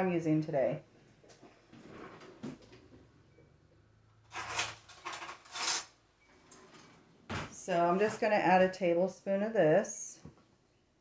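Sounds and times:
cutlery rattling in drawer: 4.3s - 5.9s
faint shuffling: 6.4s - 8.6s.

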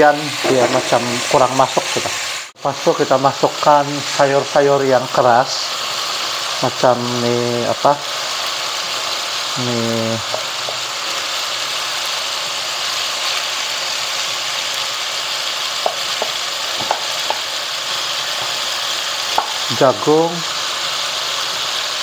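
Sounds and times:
food sizzling in a wok: 0.0s - 22.0s
spatula knocking against wok: 10.2s - 10.9s, 15.8s - 17.5s, 19.3s - 19.6s.

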